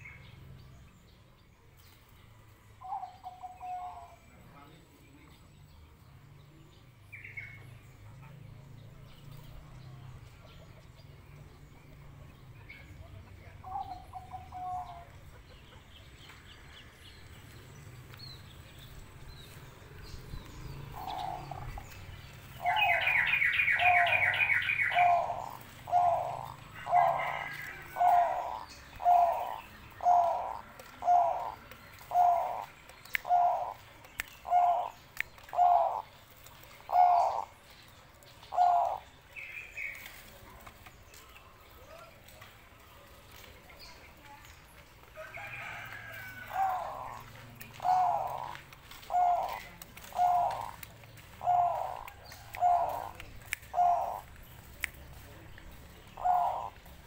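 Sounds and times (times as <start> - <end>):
dove cooing: 2.8 - 4.3, 13.6 - 15.9, 20.7 - 37.7, 38.3 - 39.2, 45.4 - 54.4, 56.0 - 57.0.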